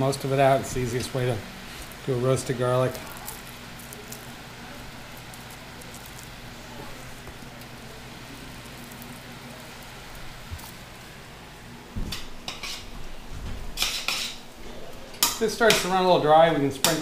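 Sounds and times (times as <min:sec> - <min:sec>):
greens sizzling in a skillet: 0:00.0 - 0:12.9, 0:13.8 - 0:17.0
metal tongs scraping a pan: 0:12.5 - 0:12.9, 0:13.8 - 0:14.4.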